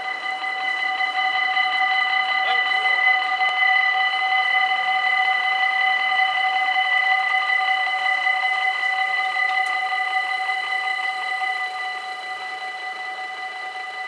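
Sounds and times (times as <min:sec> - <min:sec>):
level-crossing warning bells ringing: 0:02.2 - 0:03.8.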